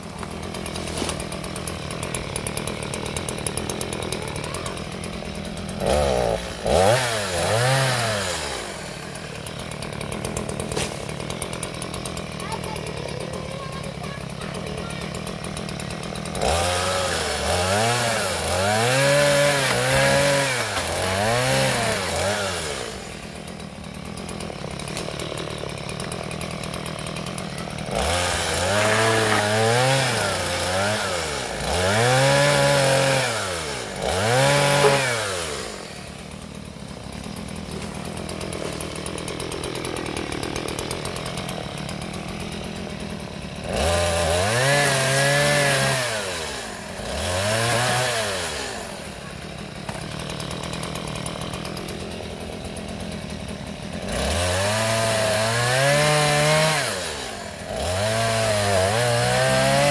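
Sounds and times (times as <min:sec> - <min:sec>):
chainsaw idling and revving: 0:00.0 - 0:59.9.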